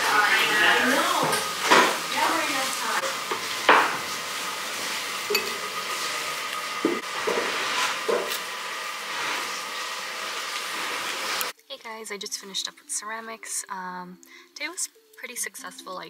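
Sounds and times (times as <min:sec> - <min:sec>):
ceramic dishes clinking: 0:05.3 - 0:05.7.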